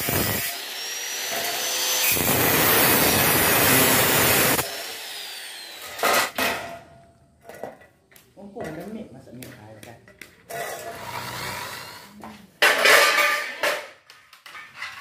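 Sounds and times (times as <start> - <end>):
angle grinder cutting steel: 0.0 - 6.4.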